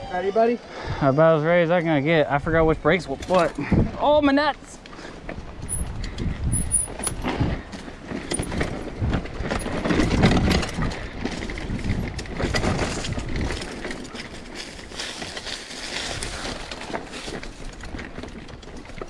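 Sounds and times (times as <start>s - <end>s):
bike clicking and rattling: 1.6s - 3.7s, 4.8s - 19.0s
bike tyres rumbling on dirt: 5.0s - 19.0s.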